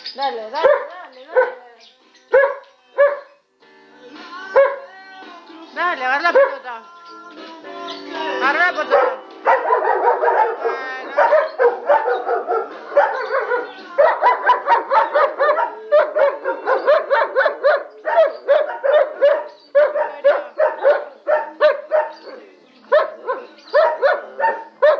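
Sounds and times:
dog yipping and whining: 8.9 - 24.9.

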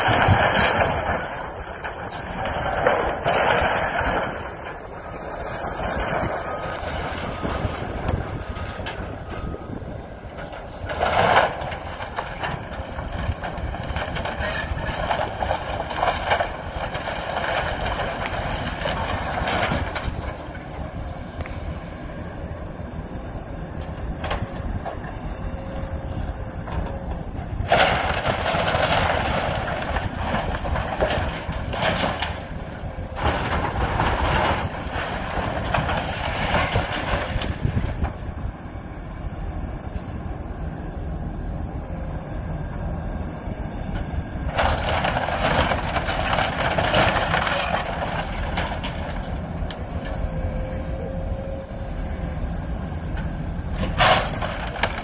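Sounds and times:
debris crashing down: 0.0 - 9.4, 10.3 - 20.7, 27.6 - 38.2, 44.5 - 49.4, 53.7 - 55.0
diesel engine running: 0.0 - 55.0
timbers cracking: 10.3 - 20.7, 27.6 - 38.2, 44.5 - 49.9, 53.7 - 55.0.

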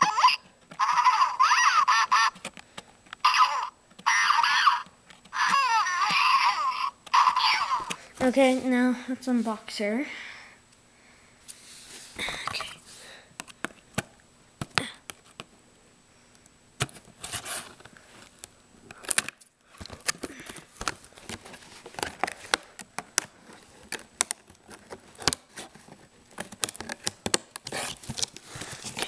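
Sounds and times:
plastic packaging crinkling: 19.0 - 29.0.

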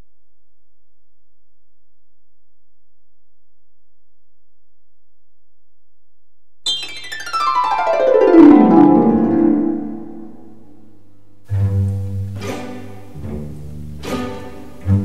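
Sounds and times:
rapid cascade of falling notes: 6.7 - 10.9
low held notes with accents: 6.7 - 11.0.

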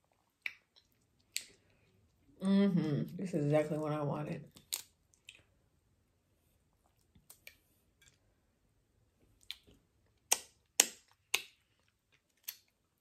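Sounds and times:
wet mouth smacks and sucks: 9.4 - 12.7.

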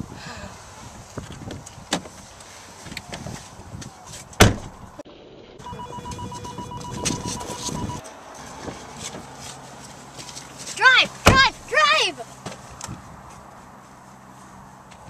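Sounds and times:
car door slamming: 4.4 - 4.8, 11.2 - 11.7
car warning chime beeps: 5.6 - 8.1.

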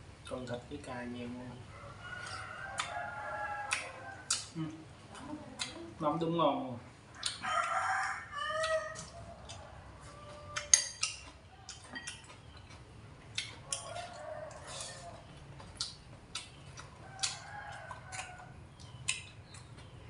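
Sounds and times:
rooster crowing: 1.7 - 4.3, 7.2 - 10.8, 13.6 - 15.3, 17.0 - 18.6
utensils clinking on ceramic bowls: 11.9 - 12.3.

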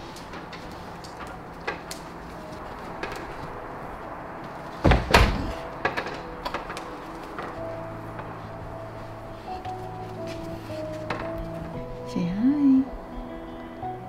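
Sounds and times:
door closing heavy thuds: 4.7 - 8.3.

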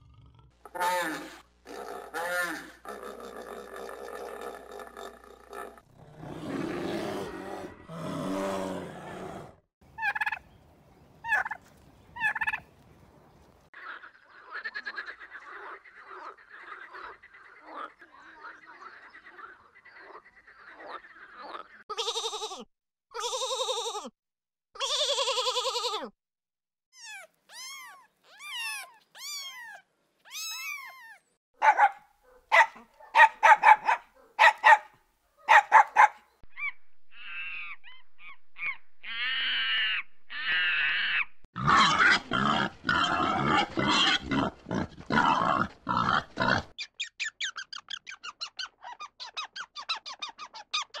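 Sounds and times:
harsh animal cries: 0.7 - 3.6, 27.0 - 31.2, 36.5 - 46.8.

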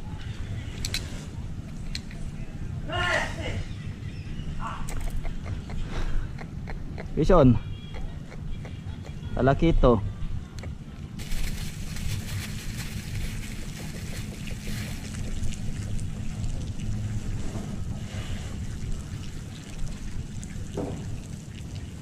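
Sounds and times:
low rumble by water: 9.7 - 22.0
plastic bag crackling: 11.2 - 15.9.

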